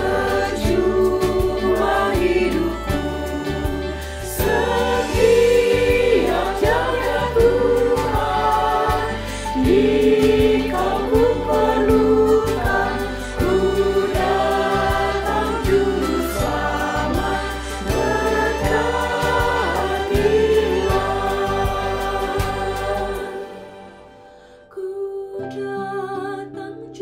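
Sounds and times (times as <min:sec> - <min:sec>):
mixed choir singing a hymn: 0:00.0 - 0:24.3.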